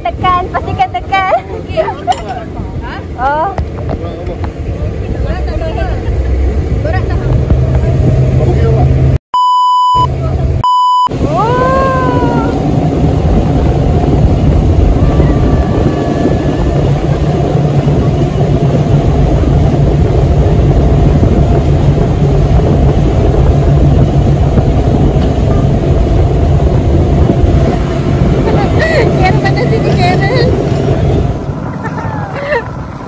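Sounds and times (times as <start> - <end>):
boat engine running: 0.0 - 9.2, 10.0 - 33.0
rushing wind: 0.0 - 9.2, 10.2 - 33.0
censor bleeps: 9.4 - 11.1
person exclaiming: 11.3 - 12.6.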